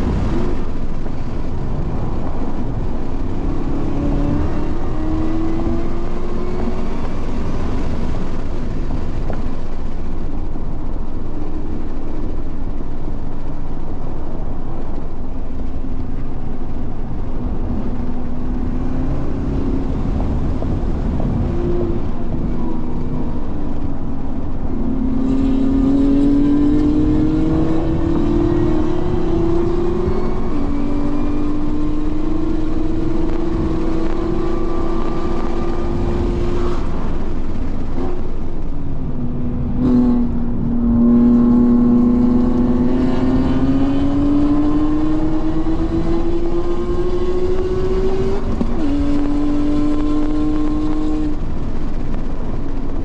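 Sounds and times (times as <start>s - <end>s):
race car engine revving: 3.1s - 8.3s, 24.6s - 51.7s.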